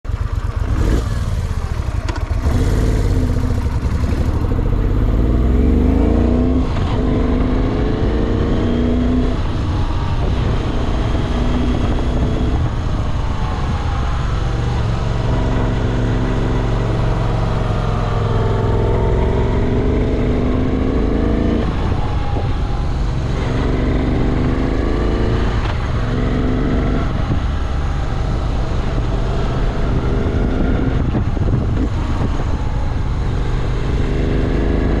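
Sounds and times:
motorcycle engine revving: 0:00.1 - 0:35.0.

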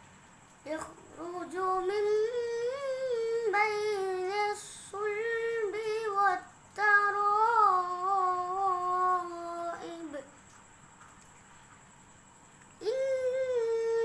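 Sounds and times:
boy chanting melodically: 0:00.6 - 0:10.4, 0:12.8 - 0:14.0.

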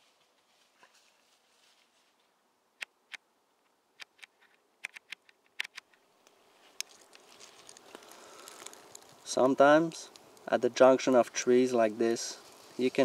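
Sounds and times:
soft hiss: 0:00.0 - 0:13.0.

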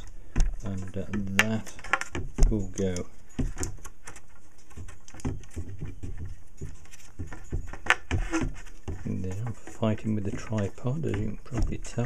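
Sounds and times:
small parts clicking and tapping: 0:00.0 - 0:12.0.

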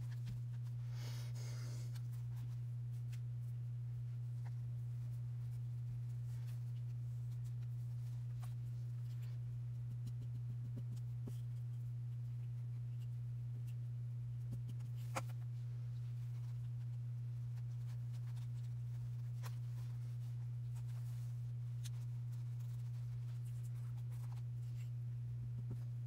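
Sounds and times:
steady low hum: 0:00.0 - 0:26.0
paper and lace rustling: 0:14.5 - 0:25.0.

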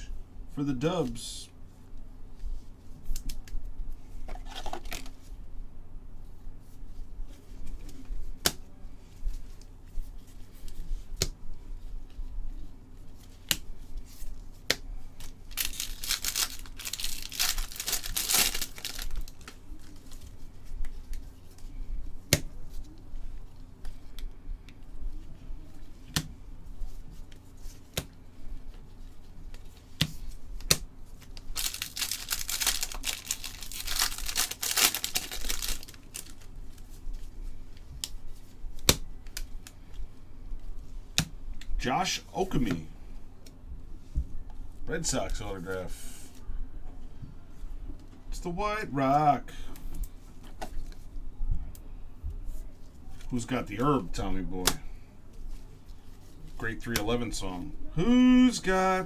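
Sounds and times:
card wrappers tearing and crinkling: 0:15.2 - 0:20.3, 0:31.2 - 0:36.9.

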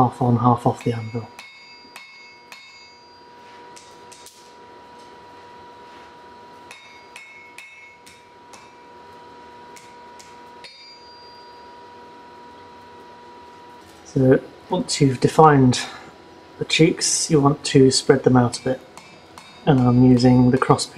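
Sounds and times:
hammer striking steel on anvil: 0:00.4 - 0:04.6, 0:06.6 - 0:11.8, 0:18.0 - 0:20.9.

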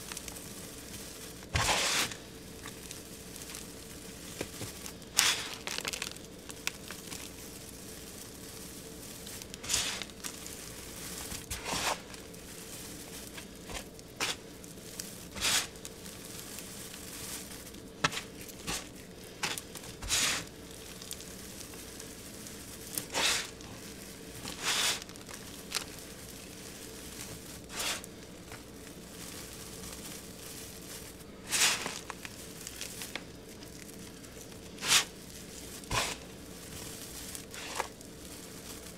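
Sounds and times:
hands crunching crumbly material: 0:00.0 - 0:38.9
soft rustling: 0:00.0 - 0:38.9.

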